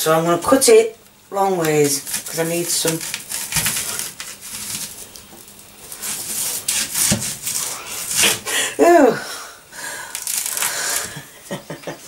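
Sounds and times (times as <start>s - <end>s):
knife slicing onion on board: 1.6s - 5.0s, 5.9s - 8.4s.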